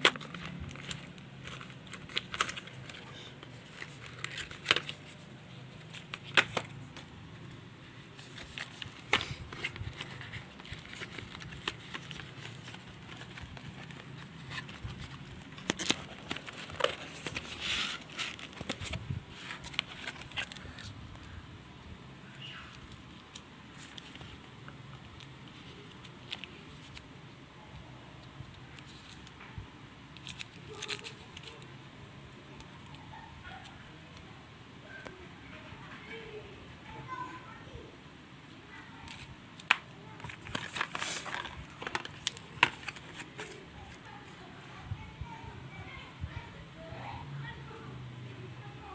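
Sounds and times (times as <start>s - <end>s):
plastic packaging crinkling: 0.0s - 7.1s, 8.1s - 20.9s, 30.2s - 31.6s, 39.1s - 44.2s
hands handling cardboard box: 0.0s - 7.2s, 7.9s - 20.9s, 39.1s - 44.5s.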